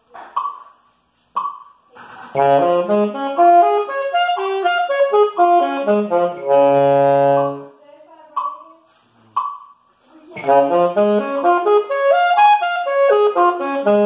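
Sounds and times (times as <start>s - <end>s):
metronome ticking: 0.4s - 0.7s, 1.4s - 1.8s, 2.4s - 7.6s, 8.3s - 14.0s
saxophone playing arpeggios: 2.4s - 7.8s, 10.4s - 14.0s.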